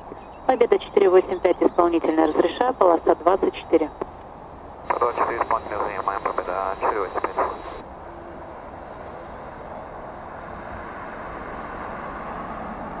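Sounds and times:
jet engines idling: 0.0s - 7.9s.

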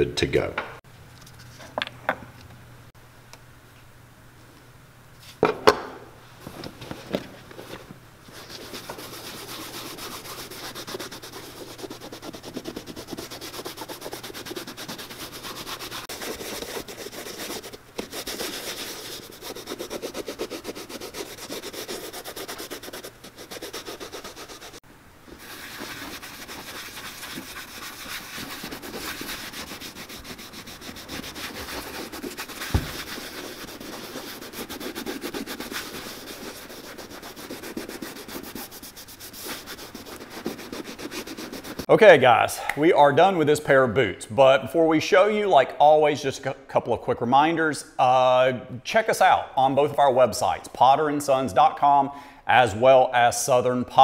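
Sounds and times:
cloth scrubbing boot leather: 6.8s - 41.9s
sharp knocks: 32.6s - 33.2s.

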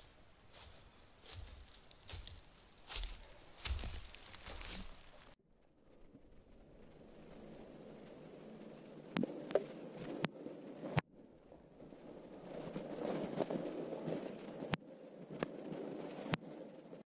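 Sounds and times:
footsteps in undergrowth: 0.0s - 5.4s.

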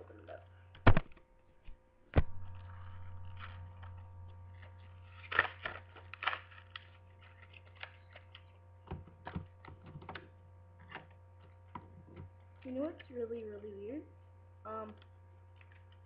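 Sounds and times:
steady low hum: 0.0s - 16.0s
plastic packaging crinkling and snapping: 2.4s - 10.2s.

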